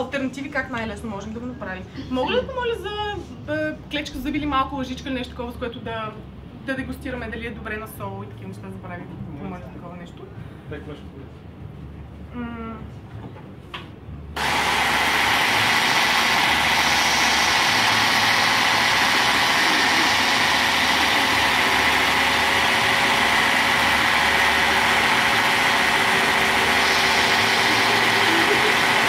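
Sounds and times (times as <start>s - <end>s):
immersion blender running: 14.4s - 29.0s.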